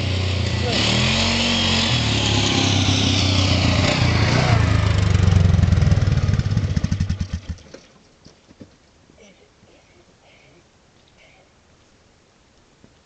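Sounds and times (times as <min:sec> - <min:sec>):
small engine running and stopping: 0:00.0 - 0:07.7.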